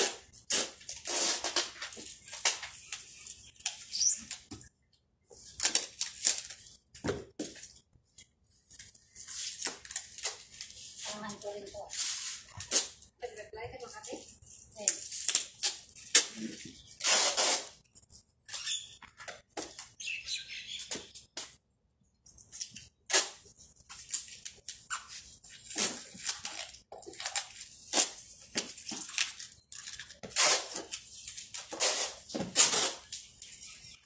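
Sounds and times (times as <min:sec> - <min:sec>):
packing tape ripping off roll: 0:00.0 - 0:04.5, 0:05.4 - 0:06.7, 0:09.1 - 0:13.0, 0:14.8 - 0:17.8, 0:22.6 - 0:34.0.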